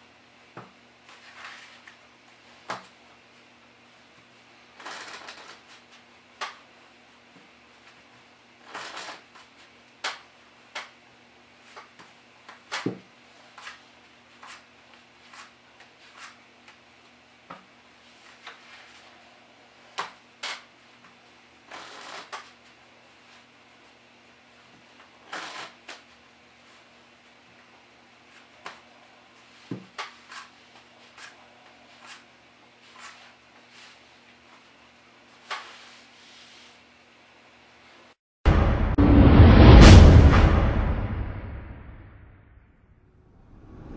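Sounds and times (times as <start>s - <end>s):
riffle shuffle of cards: 1.1s - 3.0s, 4.8s - 6.7s, 7.8s - 11.0s, 11.6s - 16.4s, 20.0s - 23.5s, 24.8s - 26.9s, 28.2s - 36.8s
playing cards snapping on mat: 10.0s - 10.9s.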